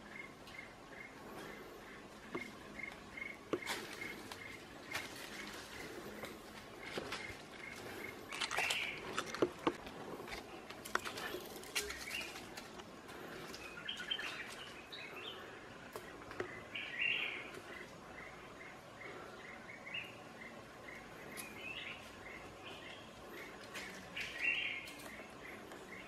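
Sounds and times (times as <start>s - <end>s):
birds chirping: 0.0s - 26.0s
clicks and rustles on rock and leaves: 2.3s - 17.9s, 22.8s - 26.0s.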